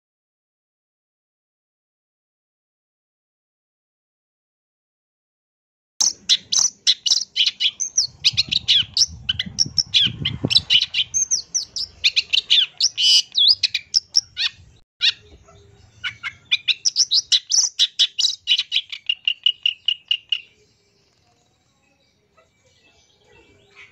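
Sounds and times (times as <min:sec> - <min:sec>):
bird chirping and chattering: 0:06.0 - 0:23.9.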